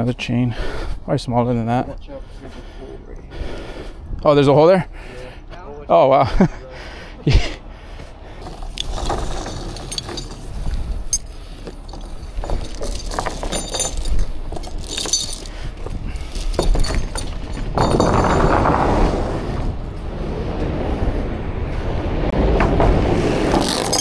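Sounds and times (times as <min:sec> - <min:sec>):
rough scraping noise: 0:08.4 - 0:13.7, 0:16.7 - 0:24.0
steel chain clinking and rattling: 0:08.4 - 0:20.0, 0:22.6 - 0:24.0.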